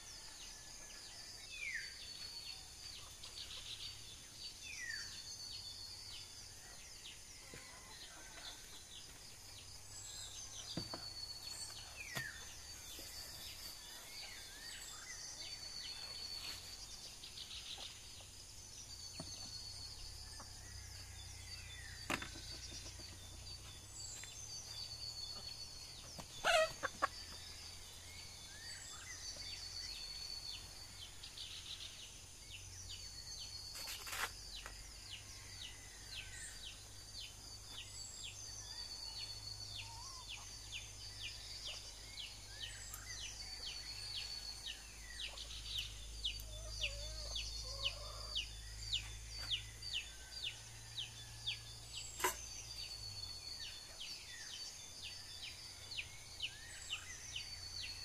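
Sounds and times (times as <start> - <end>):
birds calling: 21.6 - 31.6.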